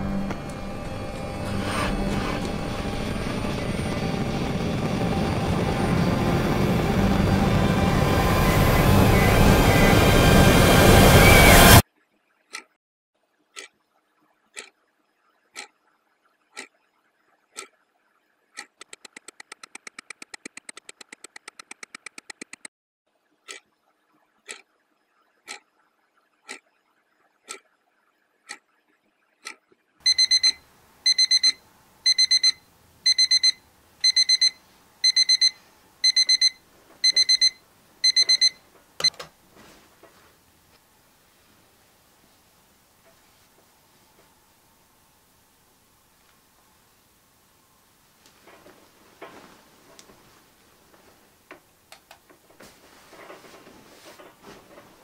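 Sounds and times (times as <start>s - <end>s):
clock ticking: 18.6s - 22.7s, 24.5s - 24.7s, 25.5s - 25.7s, 26.4s - 26.7s, 27.5s - 27.7s, 29.4s - 39.2s
alarm clock beeping: 30.0s - 39.2s
alarm clock switch click: 30.1s - 39.2s
bedding rustling: 39.4s - 40.4s, 48.2s - 51.4s, 52.4s - 55.0s.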